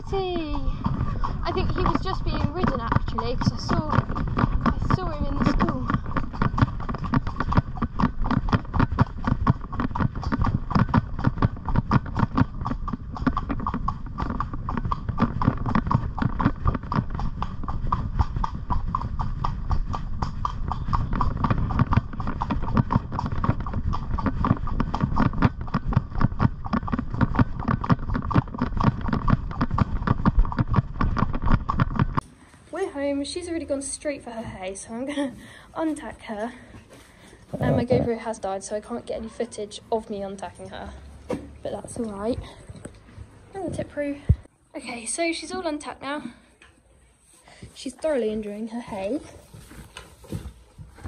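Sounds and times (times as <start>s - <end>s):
pony hoofbeats clip-clopping: 0.0s - 32.2s, 47.8s - 51.0s.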